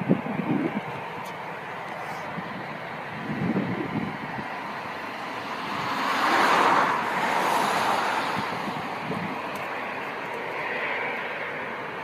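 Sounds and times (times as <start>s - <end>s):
steady outdoor hiss: 0.0s - 12.0s
vehicle passing close by: 3.3s - 12.0s.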